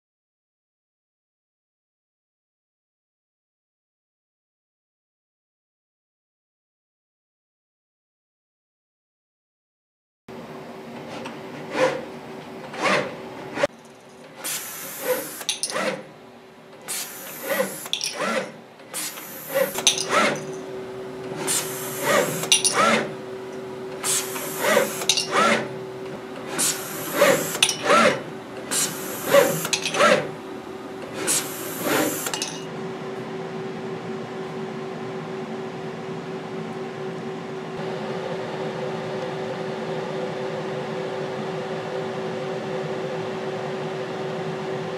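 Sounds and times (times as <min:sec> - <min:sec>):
servo motors whining: 0:16.9 - 0:20.6, 0:21.3 - 0:23.1, 0:24.0 - 0:25.6, 0:26.5 - 0:30.3, 0:31.1 - 0:32.4.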